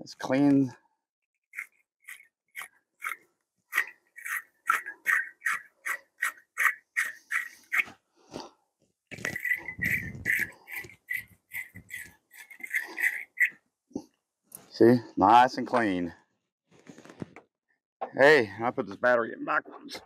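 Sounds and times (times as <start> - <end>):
wire brush scrubbing metal: 1.5 - 7.9, 9.1 - 13.6.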